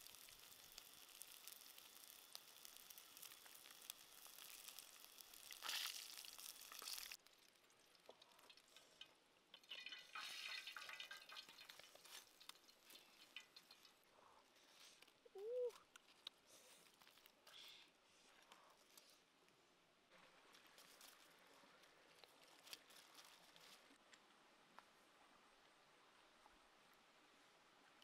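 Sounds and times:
frying in oil sizzle: 0:00.0 - 0:14.1
faint handling and scraping: 0:11.6 - 0:24.2.

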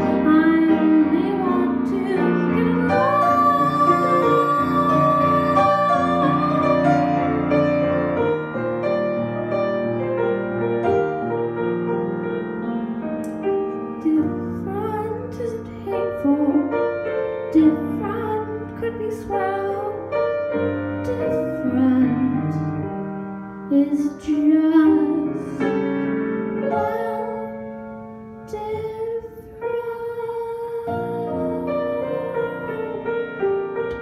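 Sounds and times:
boy singing into a microphone: 0:00.0 - 0:07.1, 0:17.5 - 0:20.1, 0:21.0 - 0:22.6, 0:26.7 - 0:27.6, 0:28.5 - 0:33.0
piano accompaniment: 0:00.0 - 0:34.0.

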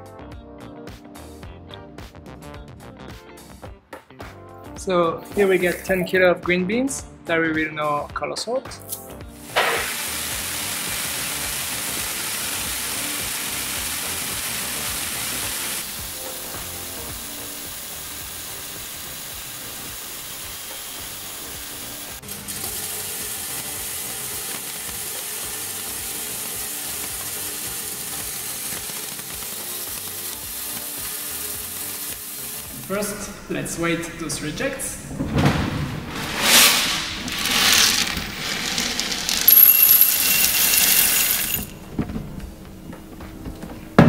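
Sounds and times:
coffee beans rattling through machine: 0:09.4 - 0:32.7, 0:36.4 - 0:41.8.

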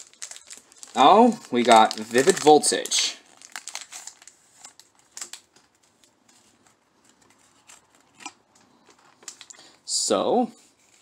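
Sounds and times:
foil wrapper crinkling: 0:00.0 - 0:06.2, 0:08.9 - 0:09.6.

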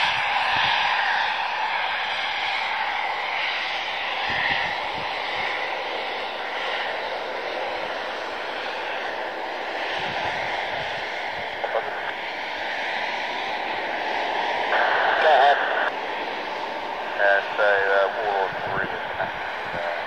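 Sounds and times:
propeller aircraft engine drone: 0:00.0 - 0:20.0.

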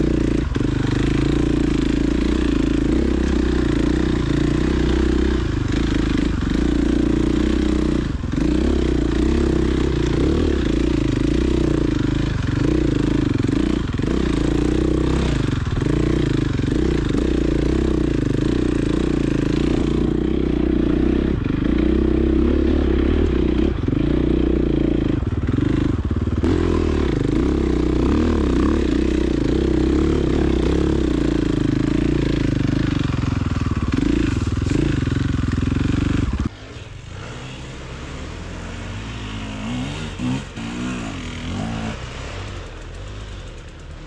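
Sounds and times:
motorcycle engine revving: 0:00.0 - 0:44.0.

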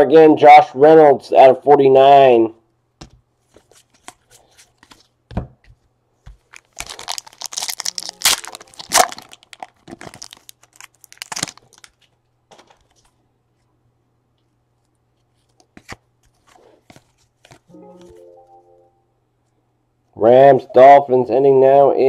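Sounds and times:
foil wrapper tearing and crinkling: 0:06.5 - 0:12.2.

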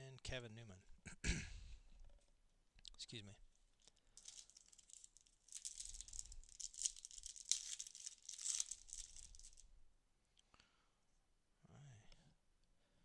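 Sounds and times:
cards rustling: 0:03.8 - 0:09.6
foil wrapper crinkling: 0:03.8 - 0:09.6.

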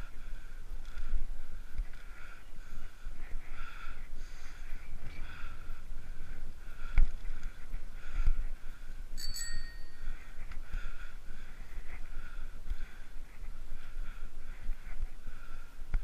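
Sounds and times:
wind: 0:00.0 - 0:16.0
bicycle bell ringing: 0:09.2 - 0:10.2.

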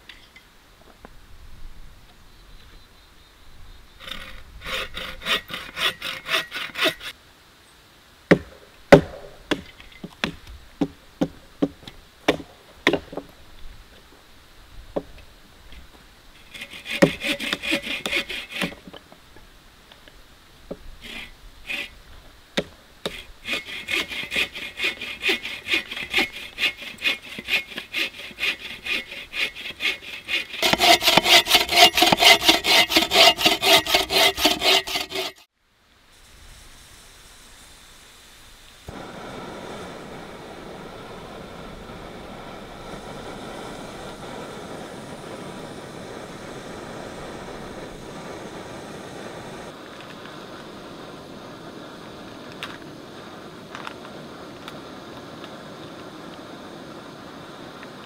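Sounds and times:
hand saw cutting a log: 0:04.0 - 0:07.1, 0:16.4 - 0:18.9, 0:21.0 - 0:22.0, 0:23.0 - 0:35.5.

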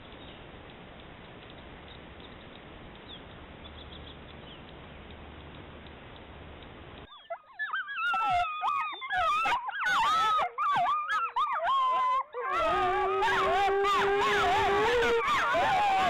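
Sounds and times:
wolves howling: 0:07.1 - 0:16.0.

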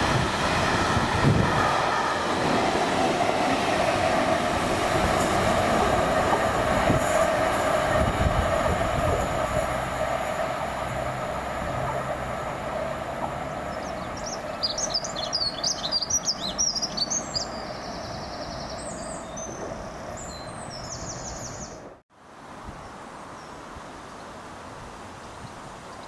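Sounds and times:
diesel locomotive pulling away: 0:00.0 - 0:21.9
songbird singing: 0:13.5 - 0:21.9.

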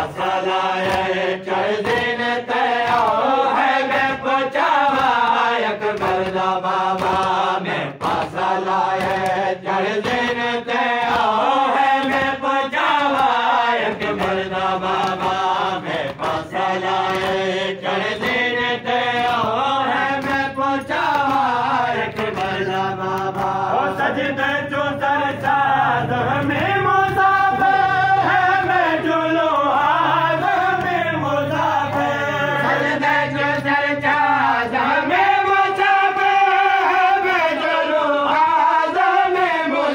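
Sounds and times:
men chanting: 0:00.0 - 0:39.9.

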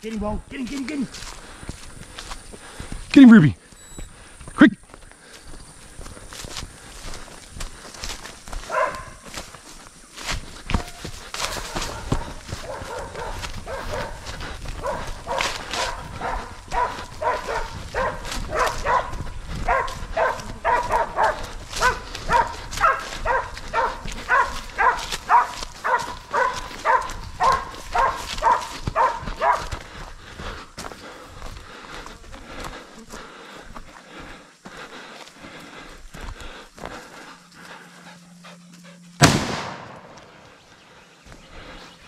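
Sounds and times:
footsteps in bushes: 0:00.0 - 0:42.0
rustling in bushes: 0:04.9 - 0:38.8
dog barking: 0:08.6 - 0:09.3, 0:10.8 - 0:29.8.

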